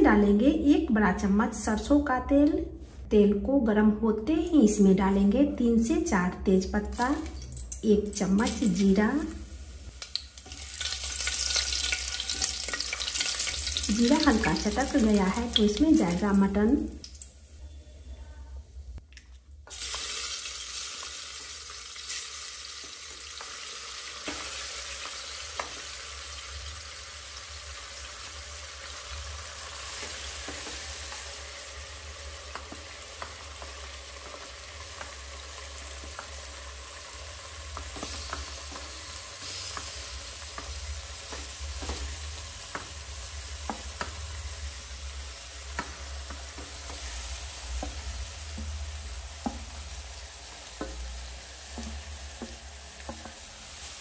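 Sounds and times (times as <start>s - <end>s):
meat sizzling in hot oil: 8.4s - 17.2s, 19.7s - 54.0s
wooden spatula stirring meat: 29.6s - 54.0s.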